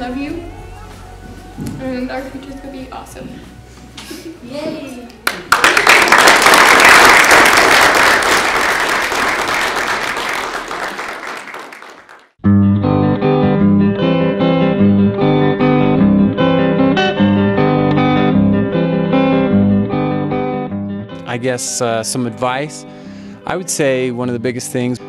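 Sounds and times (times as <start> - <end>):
group applause: 5.2 - 12.4
plucked guitar music: 12.4 - 25.0.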